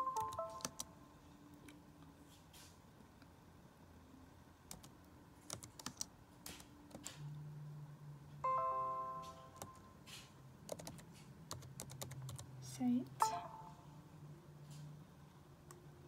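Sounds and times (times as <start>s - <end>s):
laptop keyboard keys clicking: 0.2s - 0.9s, 4.7s - 7.2s, 10.7s - 12.5s
short electronic chime: 13.2s - 13.9s.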